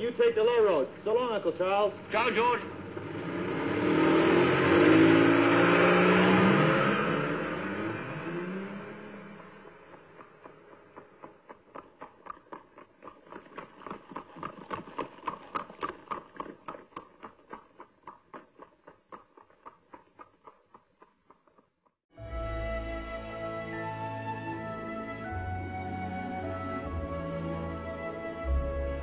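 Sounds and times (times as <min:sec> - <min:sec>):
hooves clip-clopping on pavement: 0:09.4 - 0:22.0.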